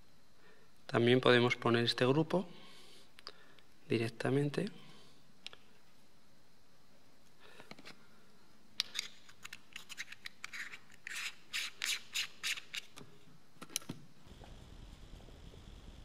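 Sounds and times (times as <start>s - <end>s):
metal rings scraping and clicking: 8.8s - 13.0s.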